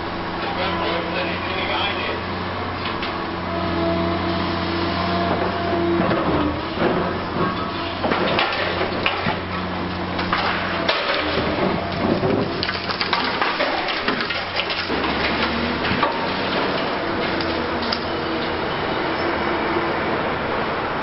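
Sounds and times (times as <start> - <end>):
diesel engine humming: 0.0 - 21.0
concrete breaking and falling: 8.0 - 9.4, 10.2 - 16.8.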